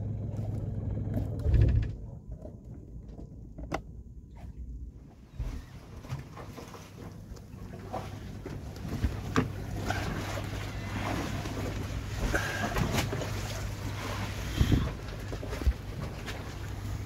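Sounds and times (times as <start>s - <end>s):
low wind rumble: 0.0s - 17.0s
boat knocking: 6.1s - 14.0s.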